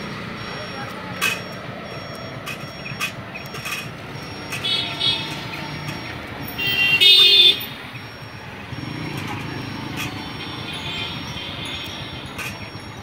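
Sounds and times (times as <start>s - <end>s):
street traffic: 0.0s - 13.0s
vehicle horn blaring: 6.5s - 7.8s.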